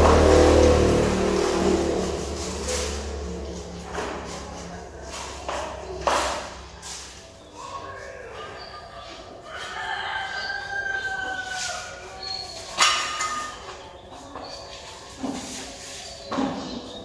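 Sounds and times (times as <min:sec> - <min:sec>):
rooster crowing: 0:09.4 - 0:12.2.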